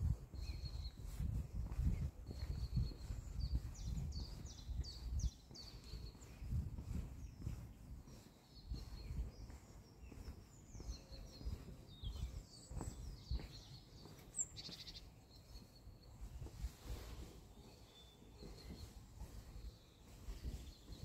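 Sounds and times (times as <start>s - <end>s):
footsteps on pavement: 0.0s - 21.0s
songbirds chirping: 0.0s - 21.0s.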